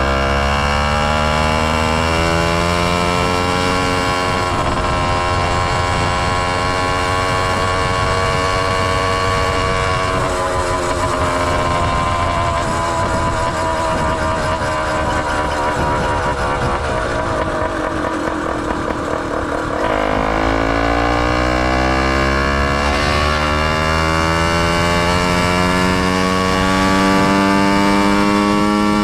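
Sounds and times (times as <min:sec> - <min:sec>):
small motorized bicycle engine: 0:02.0 - 0:23.6.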